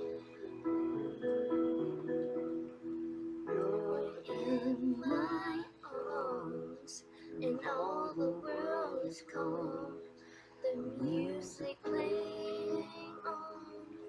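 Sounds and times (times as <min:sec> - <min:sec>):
recorded instrumental accompaniment: 0:00.0 - 0:06.4
woman singing a waltz: 0:03.5 - 0:14.0.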